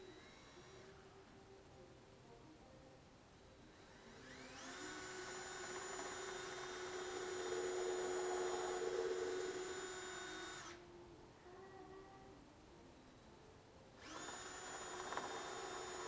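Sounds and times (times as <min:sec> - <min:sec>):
cordless drill motor whining: 0:00.0 - 0:00.9, 0:03.7 - 0:10.8, 0:14.0 - 0:16.0.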